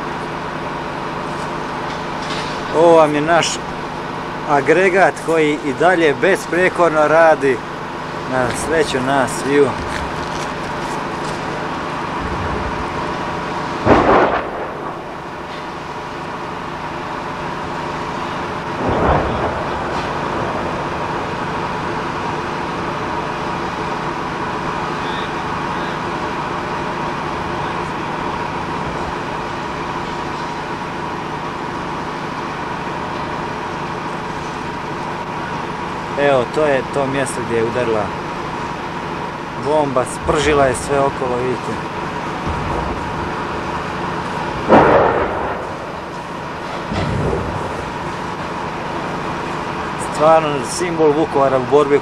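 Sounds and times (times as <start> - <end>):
power generator humming: 0.0 - 52.0
shell detonations booming: 13.8 - 15.3, 18.8 - 21.6, 44.6 - 48.4.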